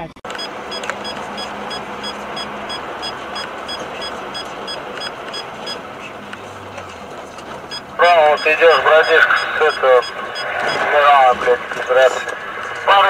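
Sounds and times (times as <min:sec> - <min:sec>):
car road and engine noise: 0:00.0 - 0:13.0
short high beeps: 0:00.3 - 0:05.8, 0:07.7 - 0:10.9.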